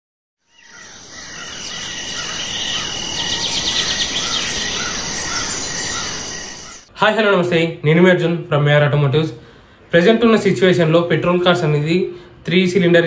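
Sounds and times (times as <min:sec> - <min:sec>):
birds chirping: 0:00.4 - 0:06.9
insects trilling: 0:00.5 - 0:06.8.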